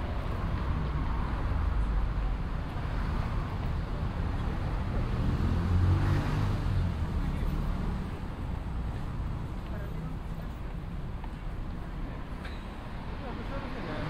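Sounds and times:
low traffic rumble: 0.0 - 14.0
vehicle driving past: 4.9 - 8.2.

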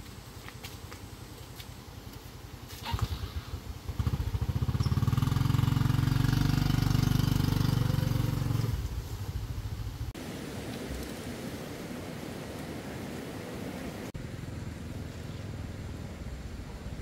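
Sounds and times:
steady hiss: 0.0 - 17.0
vehicle engine running: 2.4 - 10.1.

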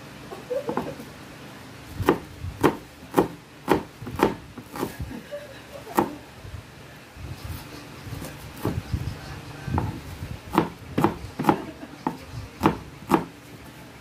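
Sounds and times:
knife chopping on cutting board: 2.0 - 4.9, 9.8 - 13.3.

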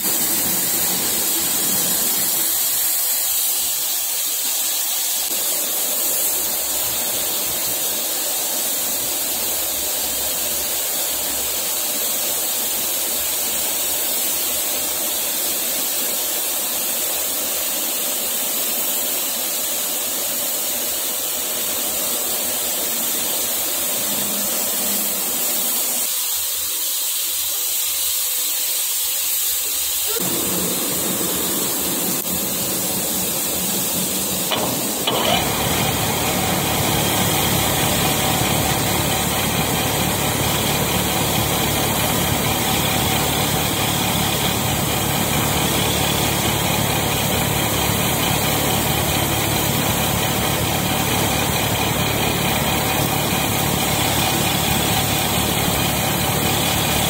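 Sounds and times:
steady hiss: 0.0 - 57.0
metal lathe running: 21.7 - 26.1, 30.2 - 57.0.

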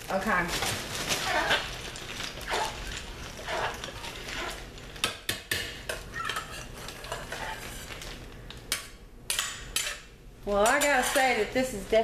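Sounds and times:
utensil scraping in ceramic pot: 2.4 - 4.7, 6.2 - 8.0, 10.6 - 11.5.

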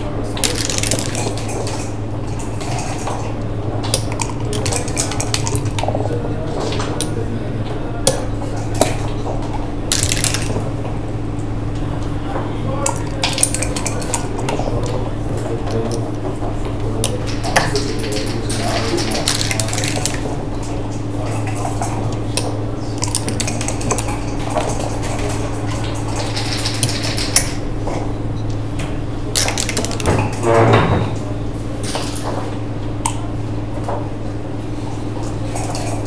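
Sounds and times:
steady low hum: 0.0 - 36.0
checkers clicking on board: 26.2 - 27.6.

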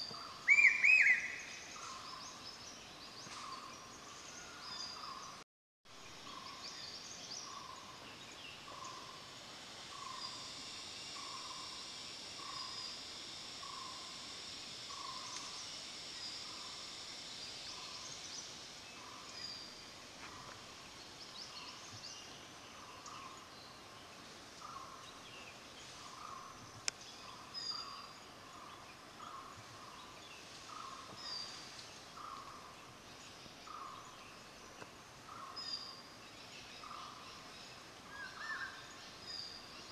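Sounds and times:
steady high buzz: 0.0 - 39.9.

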